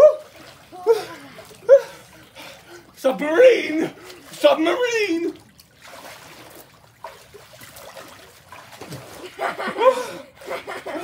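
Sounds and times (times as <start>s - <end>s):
water sloshing and trickling: 0.0s - 11.0s
person calling out: 3.2s - 5.4s.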